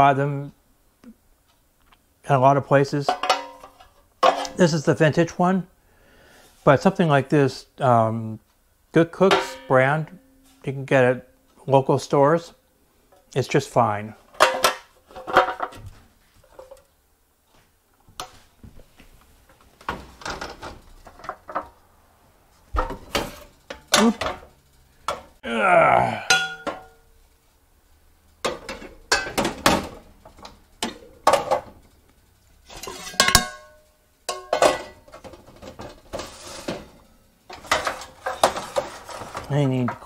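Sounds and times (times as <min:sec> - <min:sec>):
metal baking pans clanking: 0:03.1 - 0:04.7, 0:09.2 - 0:10.6, 0:14.3 - 0:15.8, 0:22.8 - 0:25.3, 0:26.3 - 0:27.0, 0:28.4 - 0:31.8, 0:32.6 - 0:40.0.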